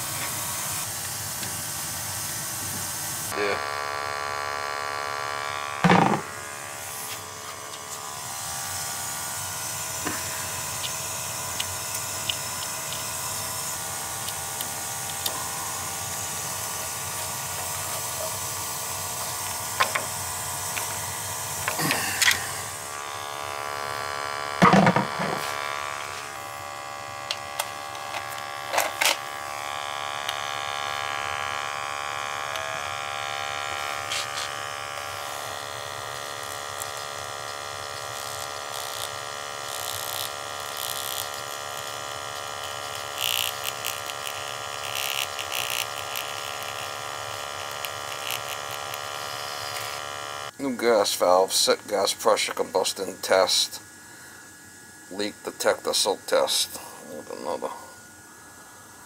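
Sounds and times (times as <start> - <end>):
pump buzzing: 0.0 - 51.4, 52.3 - 55.2.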